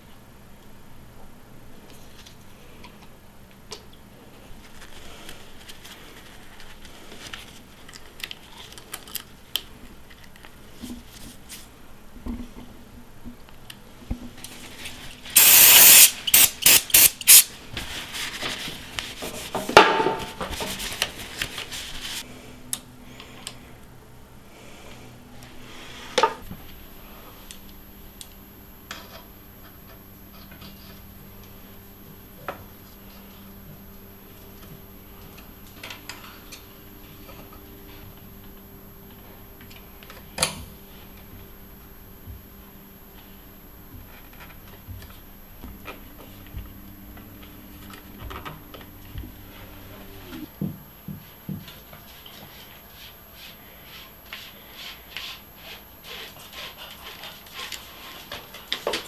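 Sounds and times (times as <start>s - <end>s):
air hissing: 15.4s - 17.5s.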